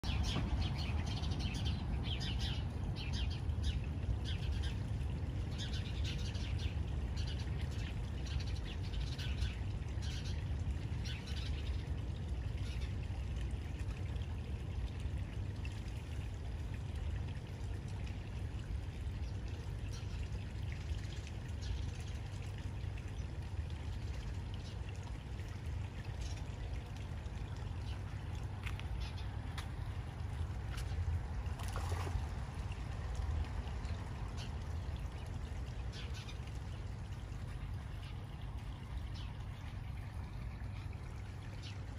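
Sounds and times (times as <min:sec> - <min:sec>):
water trickling: 0:00.0 - 0:41.9
birds chirping: 0:27.7 - 0:29.9.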